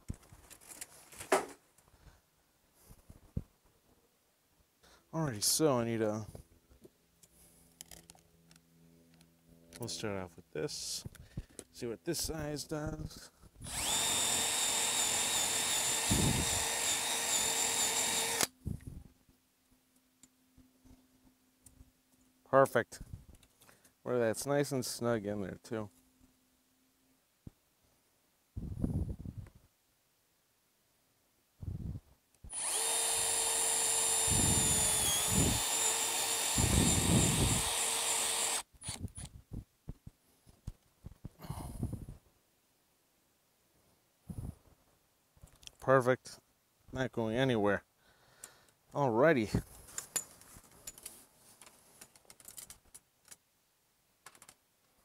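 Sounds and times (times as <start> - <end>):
cordless drill whining: 13.6 - 18.6, 32.4 - 39.3
light clicks and rattles: 49.9 - 53.4, 54.2 - 54.6.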